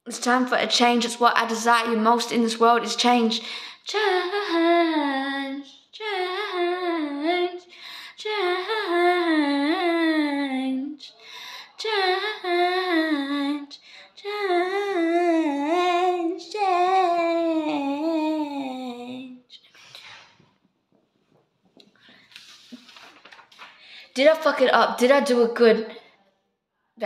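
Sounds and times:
woman singing unaccompanied: 0.4 - 19.6.

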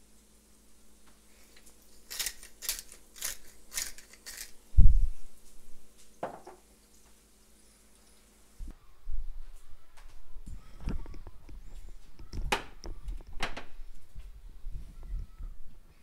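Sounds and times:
spice grinder crunching: 1.5 - 4.6.

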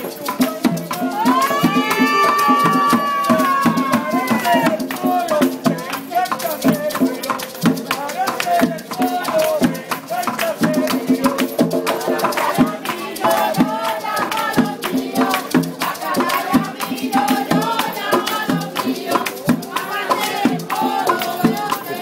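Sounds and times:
fast rattles and drums: 0.0 - 22.0
person singing: 0.0 - 22.0.

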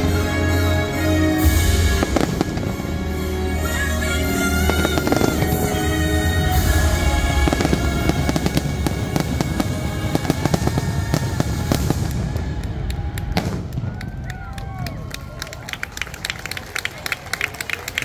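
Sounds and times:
music: 0.0 - 13.6
fireworks crackling and banging: 0.0 - 17.1.

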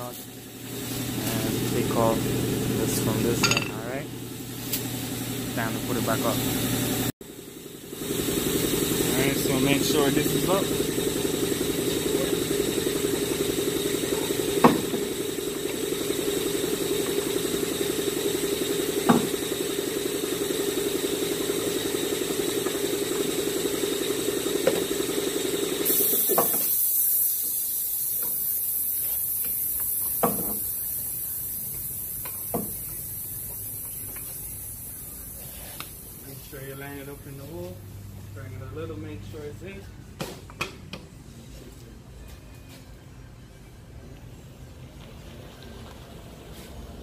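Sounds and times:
machine droning: 0.0 - 40.1
hiss of air: 25.8 - 36.8.

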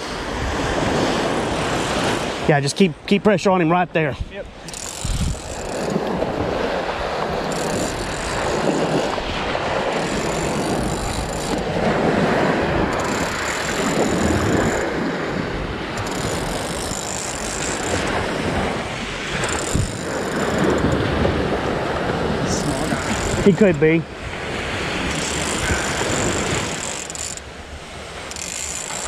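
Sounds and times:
surf rushing: 0.0 - 29.0
wind: 0.0 - 29.0
fishing reel whirring: 4.6 - 6.1, 7.4 - 9.2, 9.9 - 11.7, 12.9 - 15.4, 16.0 - 18.6, 19.3 - 21.1, 22.5 - 23.8, 25.0 - 27.5, 28.2 - 29.0.

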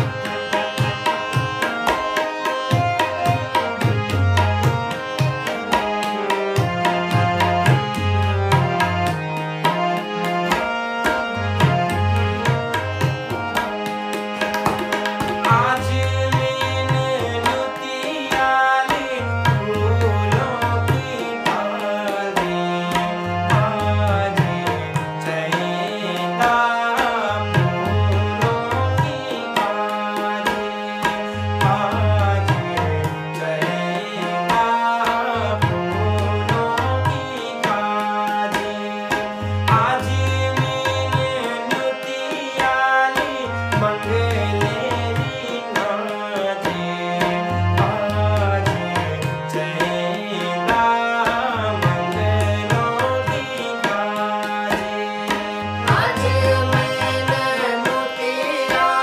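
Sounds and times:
harmonium: 0.0 - 59.0
tabla: 0.0 - 59.0
men singing folk song: 15.5 - 59.0.

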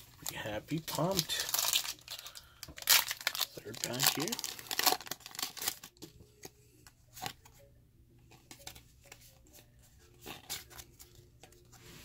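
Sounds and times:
cards rustling: 0.0 - 6.5.

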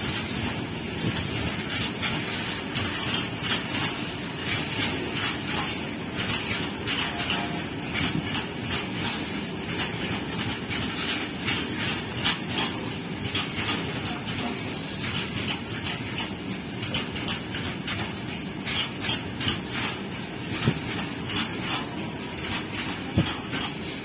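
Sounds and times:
train wheels rumbling on rail: 0.0 - 24.0
wheels clicking over rail joints: 0.0 - 24.0.

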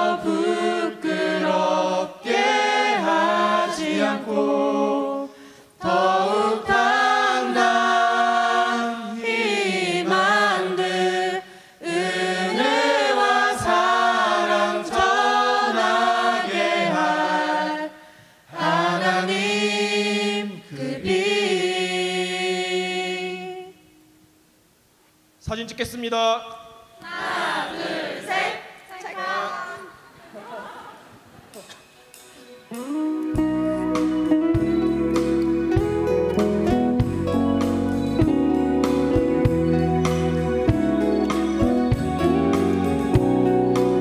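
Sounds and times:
mixed choir singing a cappella: 0.0 - 23.9, 27.0 - 30.0.

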